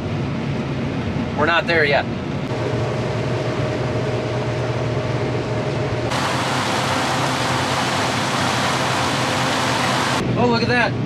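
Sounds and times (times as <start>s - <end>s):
combine harvester drone: 2.2s - 10.3s
hissy rush of combine working: 6.1s - 10.2s.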